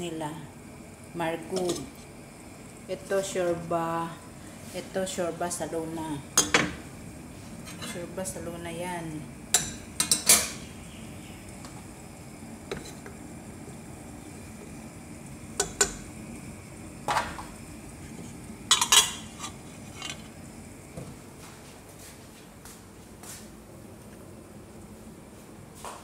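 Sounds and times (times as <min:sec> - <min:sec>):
metal pots and lids clattering: 0:09.6 - 0:10.6, 0:18.7 - 0:20.3
wooden spoon stirring in pot: 0:12.6 - 0:14.8.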